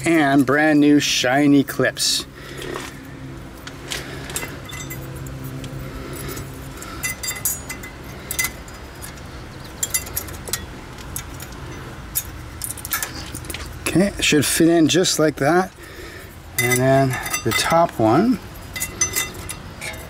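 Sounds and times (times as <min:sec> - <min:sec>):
steady low hum: 0:01.3 - 0:20.0
small metal clicks and clinks: 0:04.3 - 0:13.7, 0:16.6 - 0:20.0.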